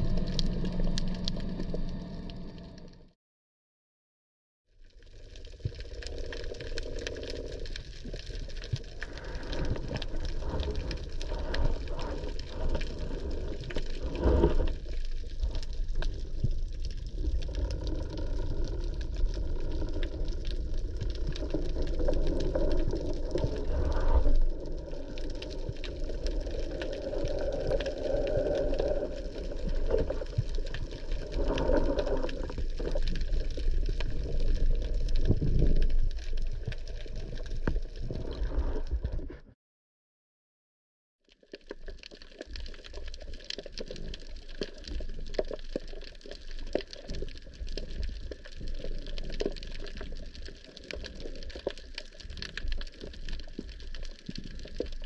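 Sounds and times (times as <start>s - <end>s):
underwater rush of water: 0.0s - 3.0s, 5.6s - 39.2s
faint underwater clicks: 0.0s - 3.1s, 5.2s - 39.2s, 41.3s - 55.0s.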